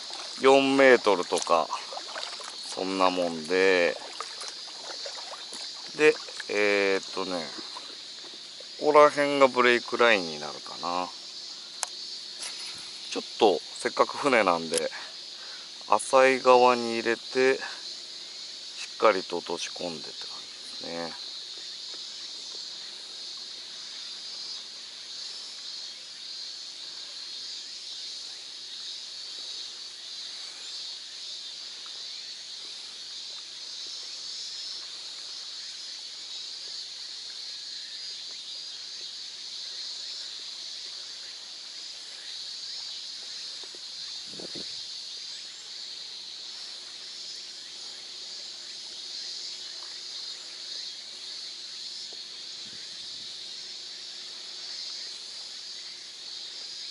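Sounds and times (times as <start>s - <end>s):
paddle splashing: 0.0s - 8.8s
high-pitched insect chorus: 0.0s - 56.9s.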